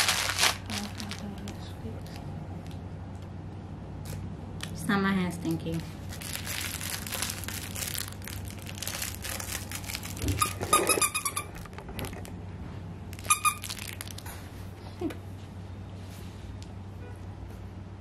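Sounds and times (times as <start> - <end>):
rustling and handling noise: 0.0 - 2.9, 5.5 - 16.8
squeaky dog toy: 10.2 - 11.7, 13.2 - 14.0.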